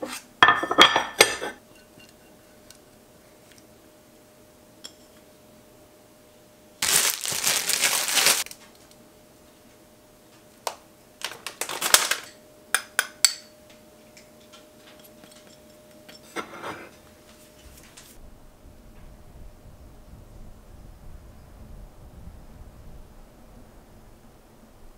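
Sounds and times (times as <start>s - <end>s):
faint steady hum: 0.0s - 24.9s
plastic packaging rustling: 6.8s - 8.8s, 11.2s - 12.4s.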